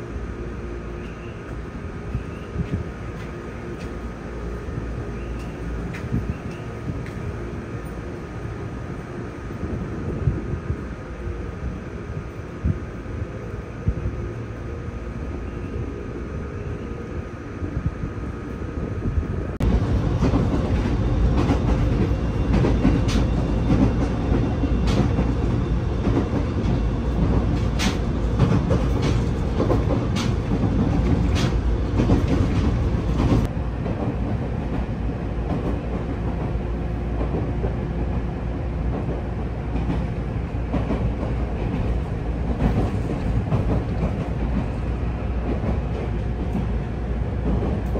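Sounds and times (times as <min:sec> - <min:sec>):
train rumbling along track: 0:00.0 - 0:47.9
wheels clicking over rail joints: 0:19.9 - 0:36.6.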